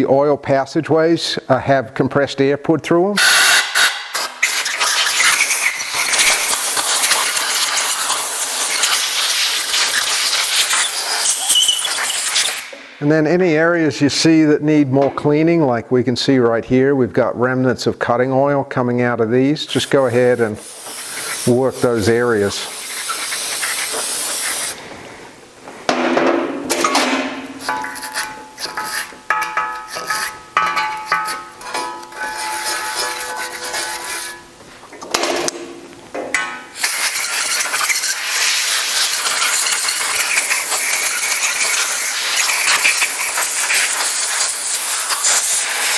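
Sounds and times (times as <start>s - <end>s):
air blow gun hissing: 3.2s - 13.0s, 19.7s - 24.9s, 36.7s - 45.9s.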